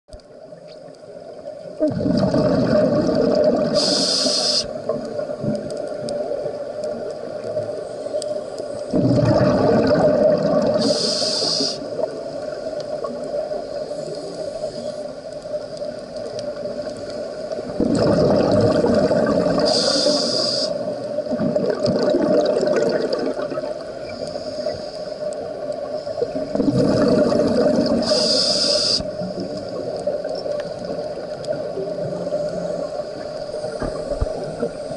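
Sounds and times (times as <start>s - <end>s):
exhaled bubbles rumbling underwater: 0.2s - 34.9s
regulator hiss: 3.7s - 4.9s, 10.7s - 12.6s, 19.5s - 21.2s, 24.0s - 26.3s, 27.8s - 29.5s.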